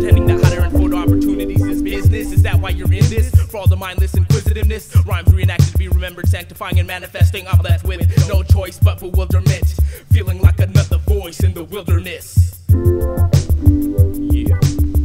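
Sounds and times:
low bass drum hits: 0:00.0 - 0:03.5
rapping over a beat: 0:00.0 - 0:12.7, 0:14.2 - 0:14.8.

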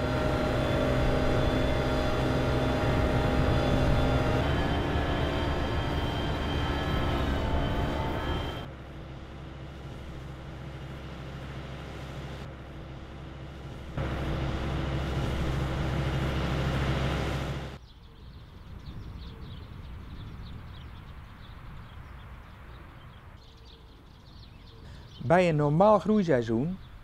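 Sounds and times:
tractor engine running: 0:00.0 - 0:17.8
faint bird chirps: 0:17.8 - 0:25.4.

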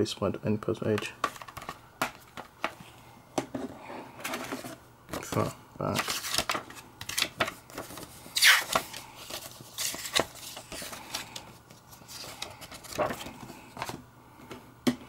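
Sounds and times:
paper rustling: 0:04.2 - 0:14.0.

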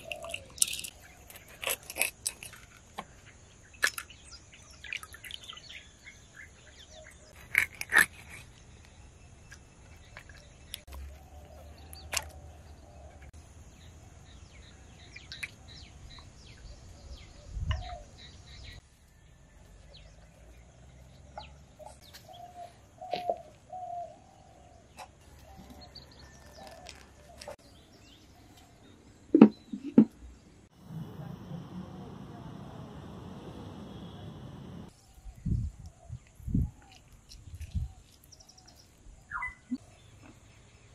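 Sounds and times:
birds chirping and calling: 0:00.0 - 0:18.8, 0:19.9 - 0:29.8, 0:31.4 - 0:40.5
steady high hiss: 0:30.7 - 0:34.9.

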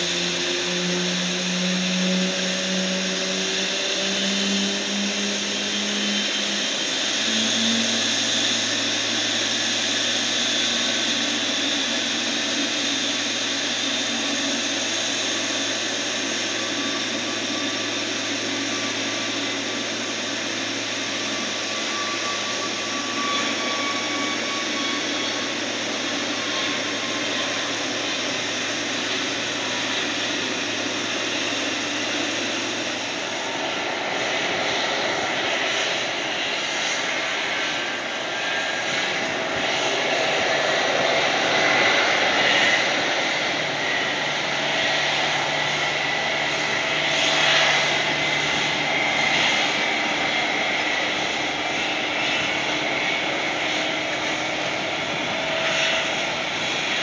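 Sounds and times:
jet engine whine: 0:00.0 - 0:57.0.

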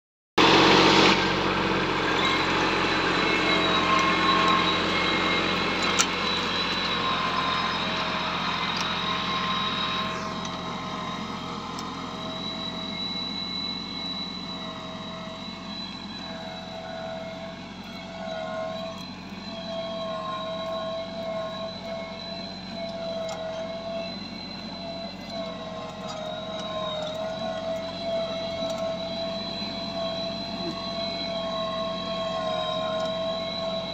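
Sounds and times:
tractor diesel engine running: 0:00.4 - 0:33.9.

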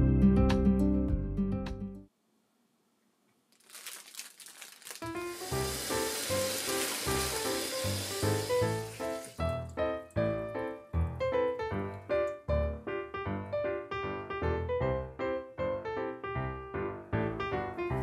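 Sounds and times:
plastic bag crinkling: 0:03.4 - 0:08.1
tap water running into strainer: 0:04.6 - 0:09.8
light piano music: 0:05.0 - 0:18.0.

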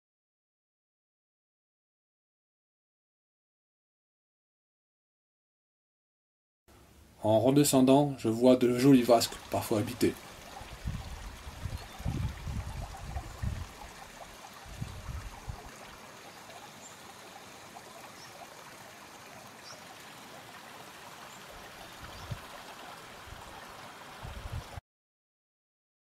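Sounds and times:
stream babbling over rocks: 0:08.7 - 0:24.8.

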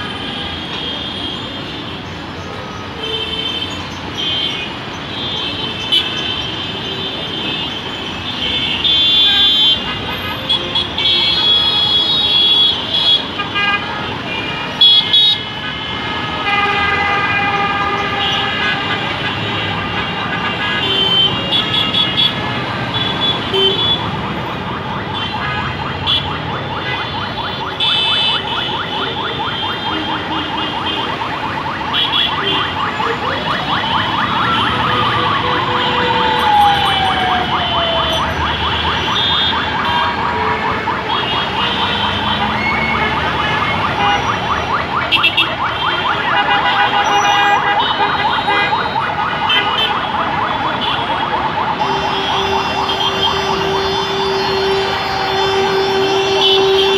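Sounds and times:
vehicle horns honking: 0:03.0 - 0:24.2, 0:38.8 - 0:44.4, 0:45.1 - 0:51.2, 0:51.8 - 0:56.9
siren-like tone: 0:24.0 - 0:46.4, 0:48.2 - 0:56.9.

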